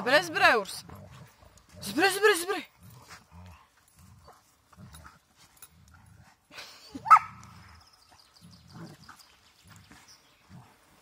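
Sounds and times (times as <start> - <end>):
dogs growling: 0.2 - 6.6, 7.3 - 11.0
dog barking: 7.1 - 7.4.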